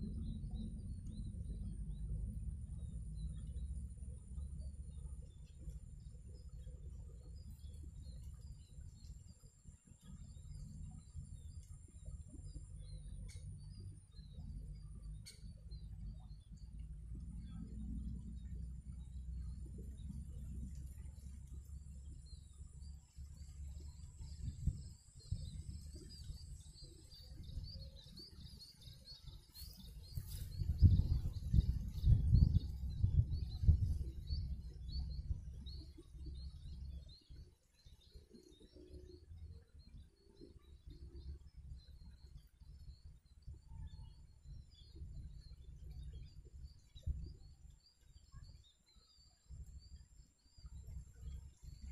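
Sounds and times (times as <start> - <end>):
wind rumble on microphone: 0.0 - 51.9
bird chirps: 22.3 - 51.9.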